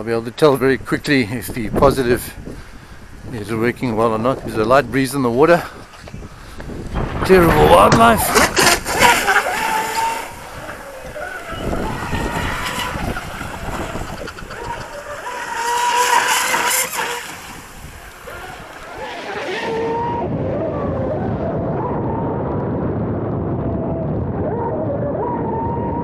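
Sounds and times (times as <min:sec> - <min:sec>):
rushing water and spray: 0:05.7 - 0:20.1
boat motor whining: 0:07.8 - 0:20.9.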